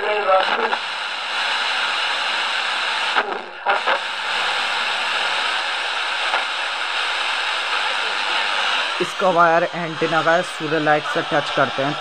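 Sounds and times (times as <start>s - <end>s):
radio static hissing: 0.0s - 12.0s.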